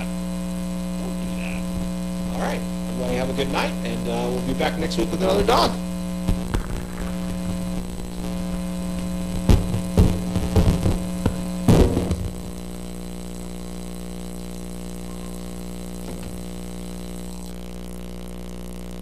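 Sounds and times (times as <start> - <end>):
electrical mains hum: 0.0 - 19.0
microphone handling knocks: 8.9 - 12.4.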